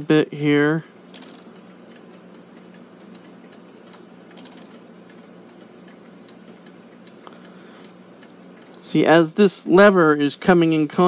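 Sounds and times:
clock movement ticking and clicking: 1.1s - 9.0s.

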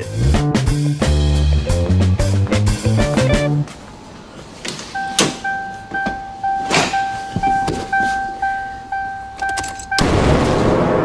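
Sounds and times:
car door and interior thuds: 4.7s - 8.3s
car warning chime beeping: 4.9s - 10.1s
loud explosion sound effect: 10.0s - 11.0s.

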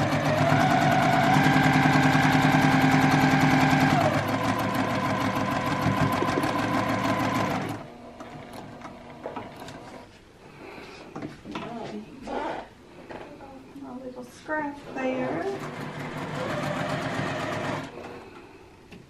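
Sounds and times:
sewing machine stitching: 0.0s - 10.0s, 15.1s - 18.2s.

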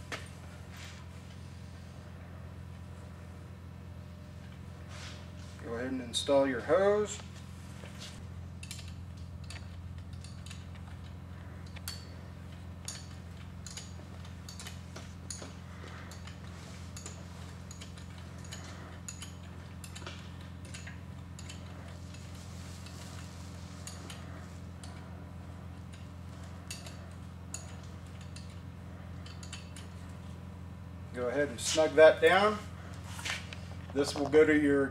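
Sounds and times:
low hum: 0.0s - 34.1s
wrench metallic clicks: 17.0s - 21.7s, 29.2s - 30.0s.

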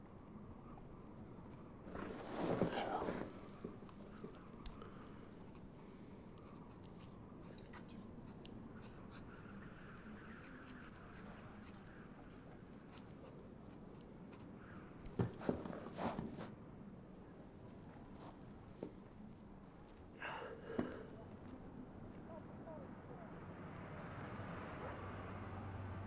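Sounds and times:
low room hum: 0.0s - 24.4s
pen scratching on notepaper: 6.4s - 12.2s.

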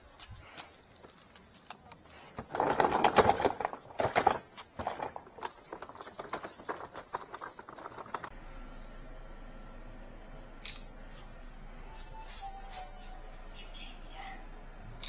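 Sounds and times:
hand truck wheels rattling: 2.1s - 8.3s.

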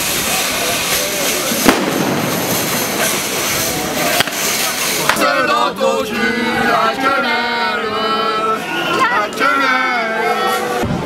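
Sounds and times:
sharp bangs: 0.0s - 5.3s
crowd hiss: 0.0s - 11.0s
small group singing: 4.0s - 11.0s.

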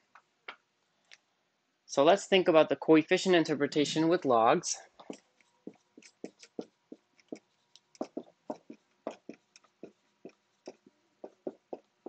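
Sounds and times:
marker writing on whiteboard: 5.0s - 12.0s.

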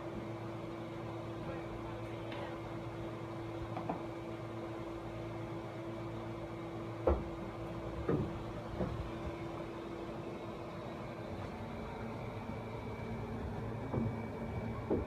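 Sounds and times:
air conditioner humming: 0.0s - 15.0s
dull knocks: 7.0s - 7.4s, 8.0s - 9.3s, 14.8s - 15.0s.

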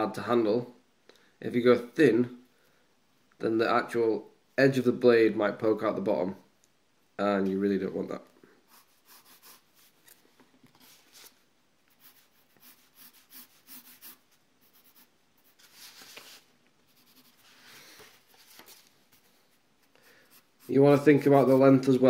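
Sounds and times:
pencil scratching on paper: 8.7s - 10.0s, 11.9s - 16.0s, 16.9s - 17.8s, 20.2s - 21.8s.

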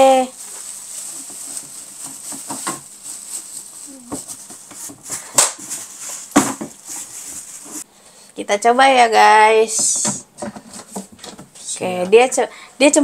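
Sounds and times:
plastic bin liner rustling: 0.0s - 7.8s.

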